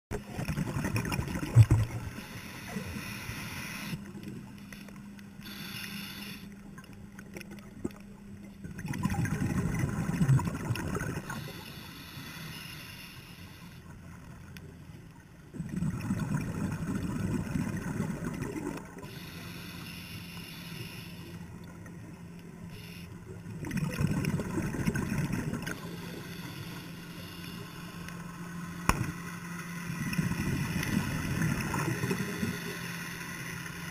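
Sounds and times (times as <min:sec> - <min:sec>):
bubbling bursts of exhaled air: 0:00.2 - 0:03.9, 0:08.8 - 0:11.7, 0:15.6 - 0:19.6, 0:23.5 - 0:26.7.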